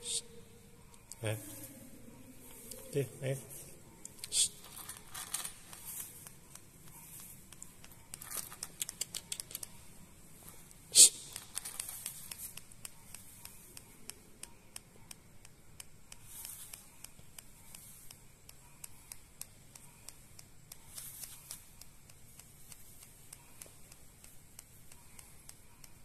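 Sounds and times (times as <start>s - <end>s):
bird claws clicking and rustling: 4.6s - 6.4s, 7.6s - 9.8s, 11.1s - 12.6s.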